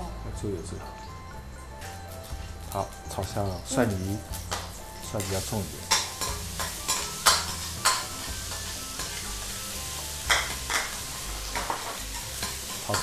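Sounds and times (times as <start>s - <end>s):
garlic sizzling in a wok: 0.8s - 13.0s.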